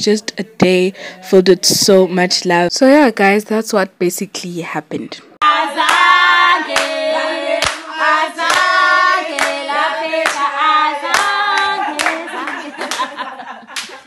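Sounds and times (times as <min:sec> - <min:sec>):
group of voices singing: 0:05.4 - 0:13.3
hand claps: 0:05.8 - 0:06.1, 0:06.7 - 0:07.0, 0:07.6 - 0:09.6, 0:10.2 - 0:14.0.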